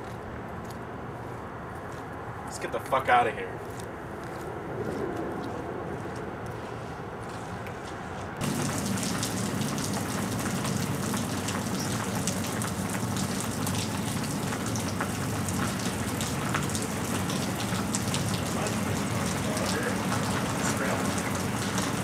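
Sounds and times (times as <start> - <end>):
rain falling on pavement: 8.4 - 22.0.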